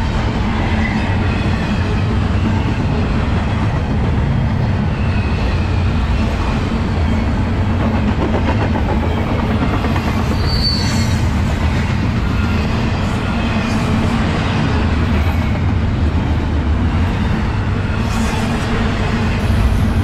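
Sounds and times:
steel train wheels on rail: 0.0 - 20.0
high-pitched wheel squeal: 10.3 - 11.3.

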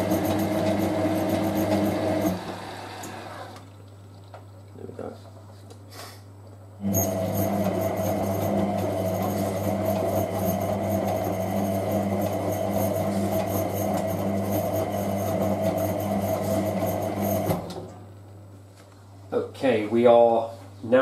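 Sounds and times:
washing machine motor whine: 0.0 - 3.9, 6.8 - 18.1.

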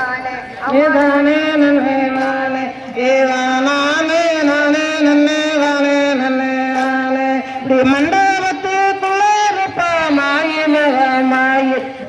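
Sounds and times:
folk song singing: 0.0 - 12.0.

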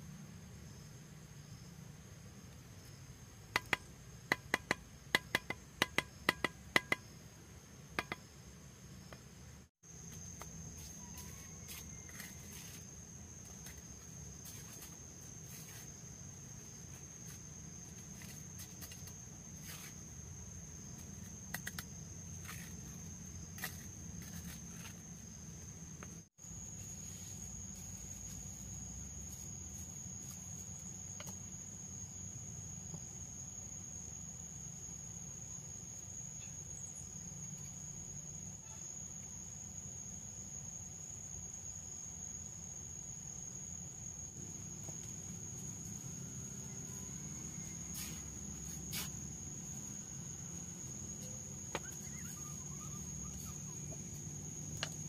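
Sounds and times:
concrete blocks tapped into mortar: 3.6 - 7.1.

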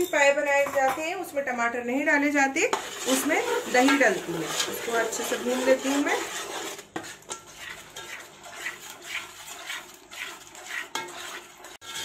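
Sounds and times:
metal spoon scraping pot: 2.6 - 12.0.

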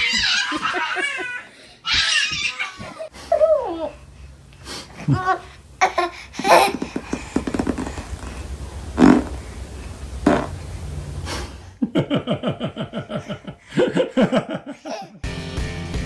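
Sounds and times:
baby giggling: 5.0 - 7.2, 14.7 - 15.2
short noisy bursts: 7.3 - 11.6.

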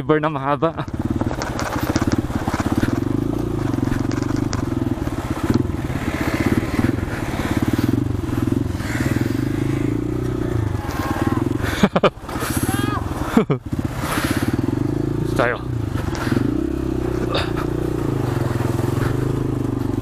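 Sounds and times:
motorcycle engine running: 0.5 - 20.0
stones crunching under tyres: 0.9 - 13.2.

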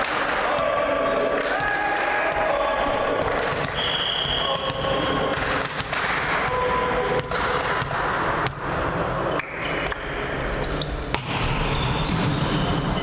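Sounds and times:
volleyball hits echoing: 0.0 - 10.1, 11.0 - 12.8
shoes squeaking on court: 10.6 - 13.0.

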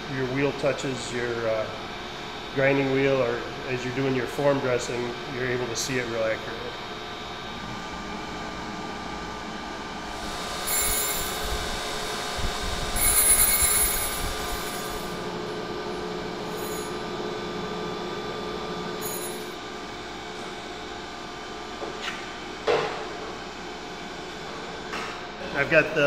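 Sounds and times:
surface grinder running: 10.1 - 15.3, 16.4 - 17.0
high-pitched scraping hisses: 10.2 - 12.0, 12.9 - 15.1.

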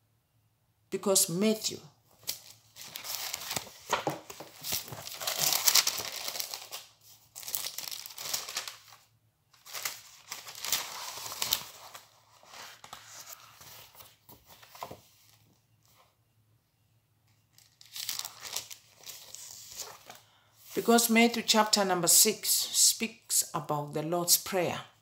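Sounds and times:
thin book pages rustling: 2.1 - 16.0, 17.6 - 20.8.

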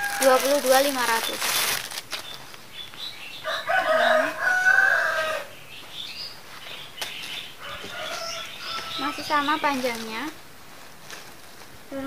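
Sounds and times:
rooster crowing: 0.0 - 0.5, 3.4 - 5.6, 7.6 - 9.4.

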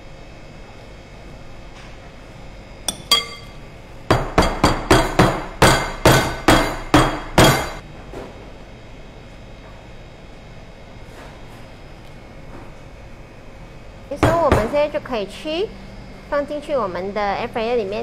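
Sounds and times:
sharp ringing clinks: 2.9 - 3.6.

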